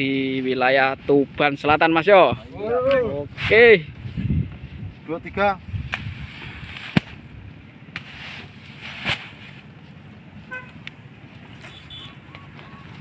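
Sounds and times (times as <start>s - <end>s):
sacks rustling: 8.0s - 10.0s.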